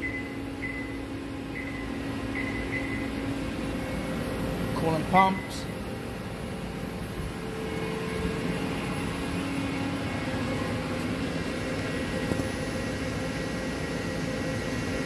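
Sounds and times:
machine hum and whir: 0.0s - 15.0s.

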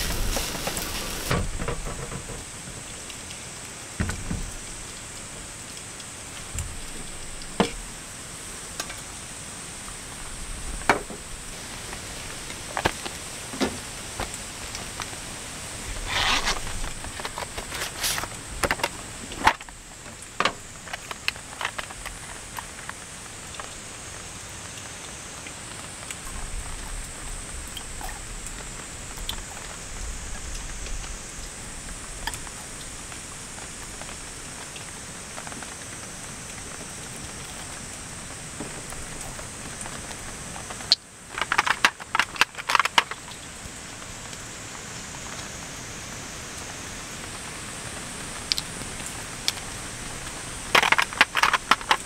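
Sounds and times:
rain hiss: 0.0s - 52.0s
items handled on table: 15.9s - 19.6s, 50.8s - 52.0s.

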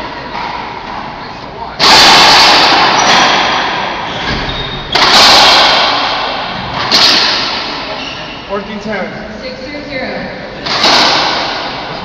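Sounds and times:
racquetball cracking off walls: 1.8s - 7.9s, 10.6s - 11.9s.

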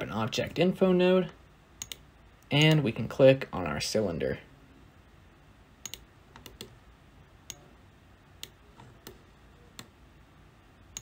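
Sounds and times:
mouse and keyboard clicks: 5.8s - 6.8s.

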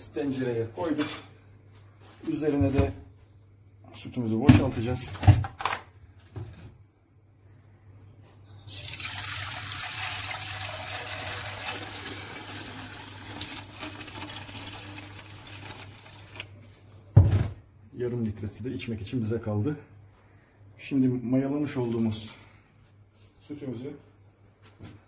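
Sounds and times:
milk pouring into a pot: 8.7s - 16.6s.

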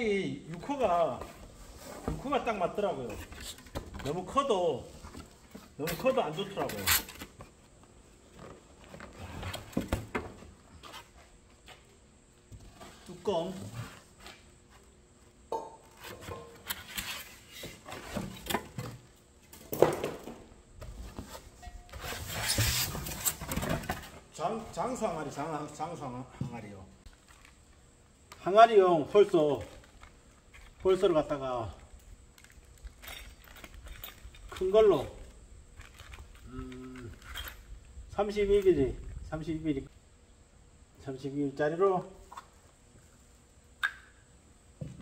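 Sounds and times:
styrofoam and cardboard rubbing: 21.3s - 23.4s.

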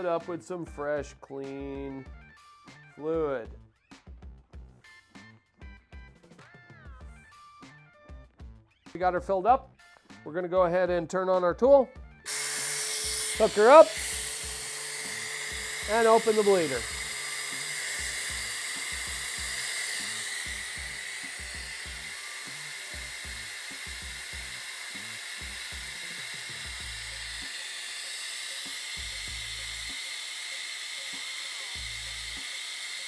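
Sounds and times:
air-powered brake bleeder hissing: 12.3s - 33.0s.

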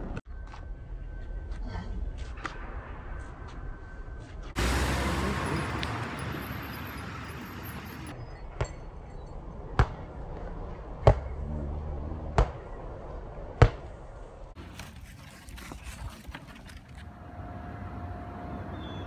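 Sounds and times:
basketball bouncing on asphalt: 13.6s - 14.0s.

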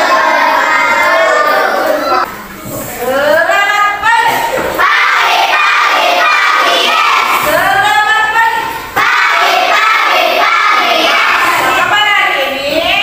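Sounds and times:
children singing in unison: 0.0s - 2.3s, 4.8s - 7.6s, 9.0s - 11.8s.

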